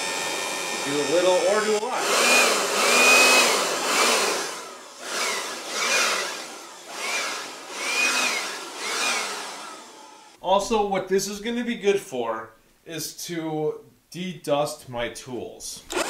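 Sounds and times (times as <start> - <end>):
electric blower whine and air rush: 0.0 - 10.4.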